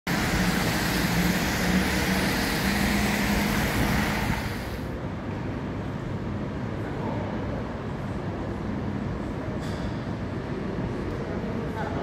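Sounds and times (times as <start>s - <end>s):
cars driving past: 0.1s - 5.0s.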